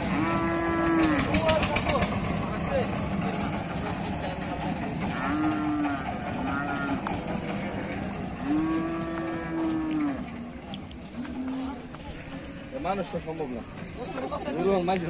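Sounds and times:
cattle mooing: 0.0s - 1.3s, 5.0s - 10.4s.

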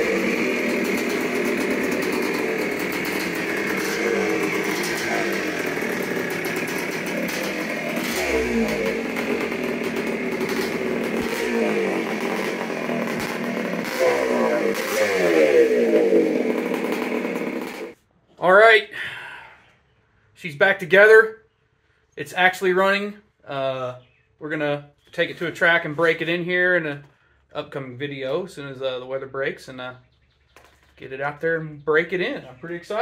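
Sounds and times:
two-stroke motorcycle engine revving: 0.0s - 18.0s.

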